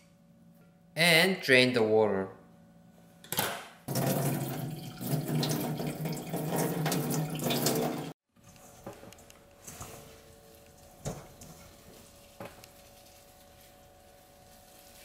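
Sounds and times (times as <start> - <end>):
water pouring into metal sink: 3.9 - 8.2.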